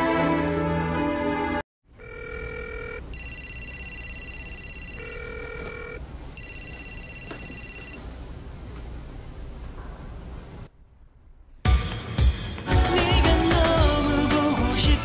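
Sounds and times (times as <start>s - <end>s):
phone ringing tone: 1.9s - 8.0s.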